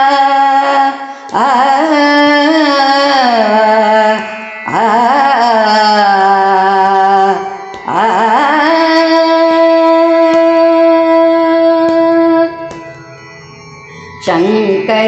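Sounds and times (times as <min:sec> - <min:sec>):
woman singing: 0:00.0 - 0:12.9, 0:14.2 - 0:15.0.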